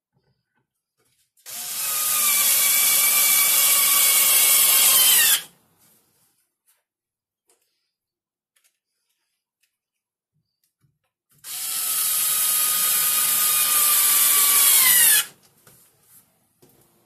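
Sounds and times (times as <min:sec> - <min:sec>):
cordless drill boring into wood: 0:01.5 - 0:05.5, 0:11.4 - 0:15.4.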